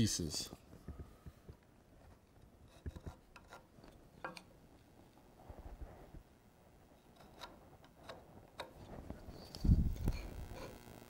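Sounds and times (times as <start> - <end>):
pencil scratching on wood: 2.6 - 3.7.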